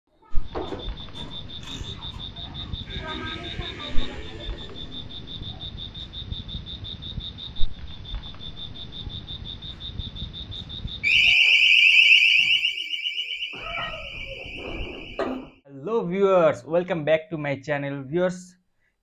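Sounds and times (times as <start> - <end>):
pulsing insect trill: 0.8 - 15.6
warbling security alarm siren: 0.9 - 15.6.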